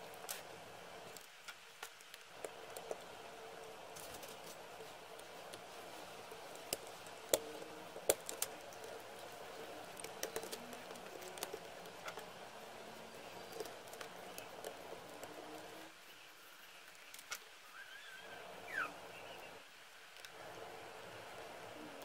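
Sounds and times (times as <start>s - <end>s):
faint steady hum: 0.0s - 22.0s
small metal and plastic clicks: 6.2s - 12.4s.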